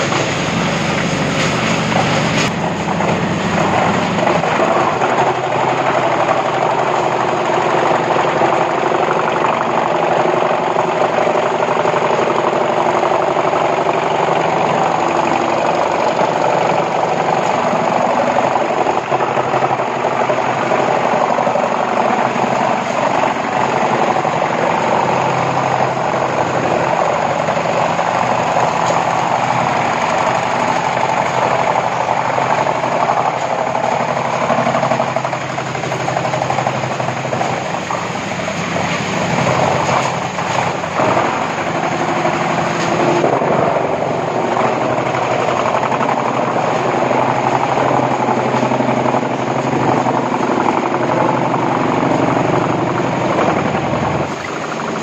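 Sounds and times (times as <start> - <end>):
tractor engine pulling: 0.0 - 55.0
wood chipper chipping boards: 0.0 - 55.0.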